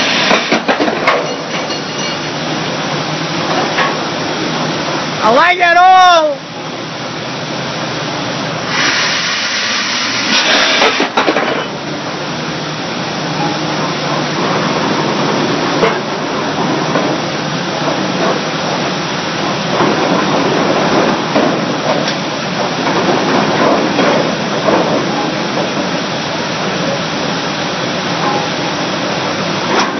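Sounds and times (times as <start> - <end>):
pile hammer exhaust hiss: 0.0 - 1.1, 8.6 - 11.7.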